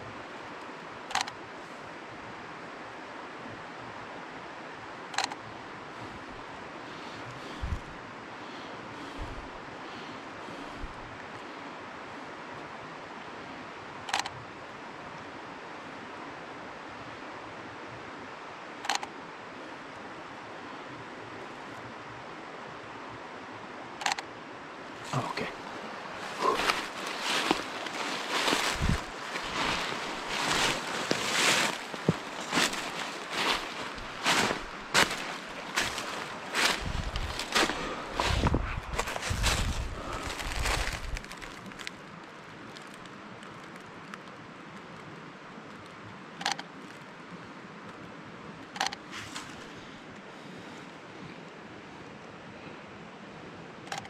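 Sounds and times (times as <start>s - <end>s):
river rushing: 1.8s - 43.2s.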